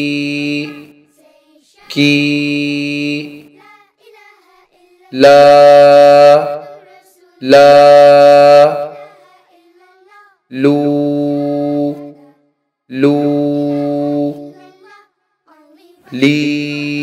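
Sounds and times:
voice holding a long vowel: 0:00.0 - 0:01.0, 0:05.1 - 0:06.8, 0:07.4 - 0:09.2, 0:10.5 - 0:14.7, 0:16.1 - 0:17.0.

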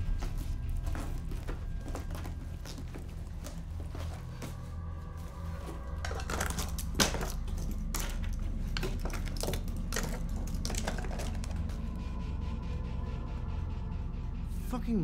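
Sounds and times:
steady low drone: 0:00.0 - 0:15.0
jewellery clicking and bag rustling: 0:05.6 - 0:11.7.

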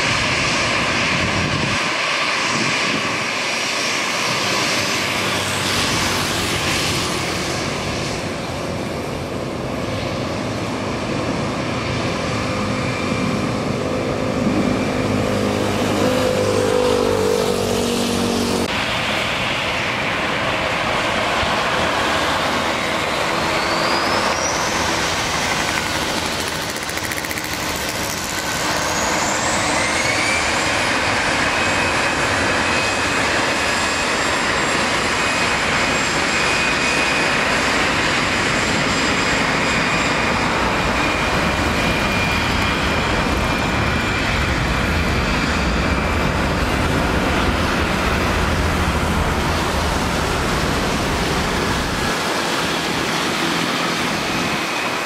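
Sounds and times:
jet engine roar: 0:00.0 - 0:55.0
jet engine whine: 0:00.0 - 0:55.0
low runway rumble: 0:00.0 - 0:55.0.

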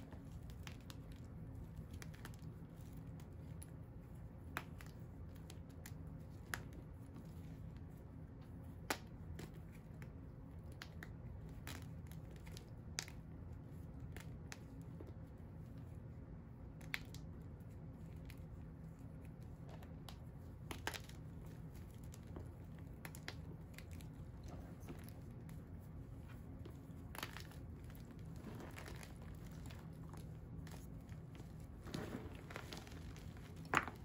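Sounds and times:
steady low hum: 0:00.0 - 0:34.0
chalk pieces snapping: 0:18.0 - 0:25.6
chalk crunching and scratching: 0:20.7 - 0:34.0.

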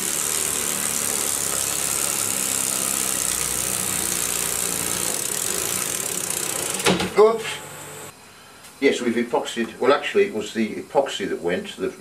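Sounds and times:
model steam engine running: 0:00.0 - 0:08.1.

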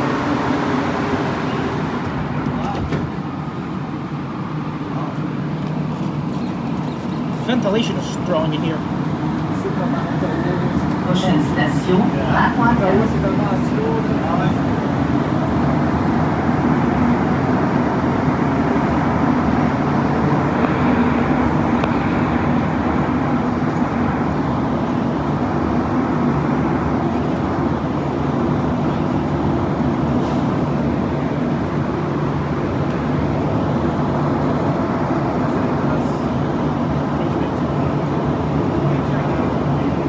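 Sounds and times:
metro train rumbling in tunnel: 0:00.0 - 0:40.0.

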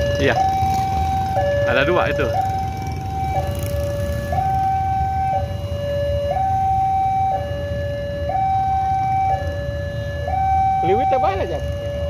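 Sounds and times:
motorcycles idling: 0:00.0 - 0:05.4
level crossing alarm tones: 0:00.0 - 0:12.0.

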